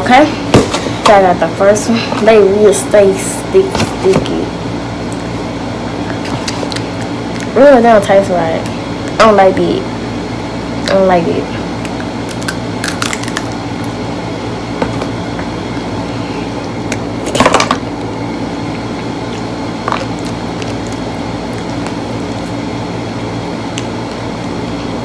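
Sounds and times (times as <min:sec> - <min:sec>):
steady background hum: 0:00.0 - 0:25.0
candy shell crunching when bitten: 0:11.9 - 0:13.6.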